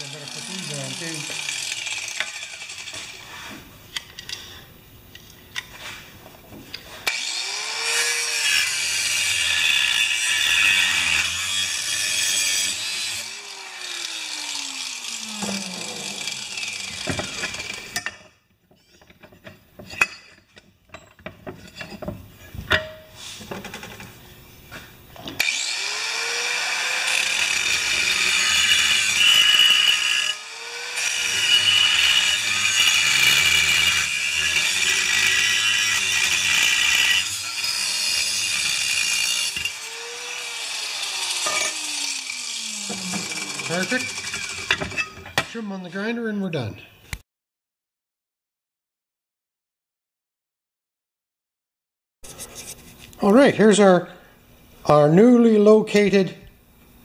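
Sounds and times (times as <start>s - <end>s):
angle grinder cutting metal: 0.0s - 3.5s, 7.0s - 18.2s, 25.4s - 46.0s.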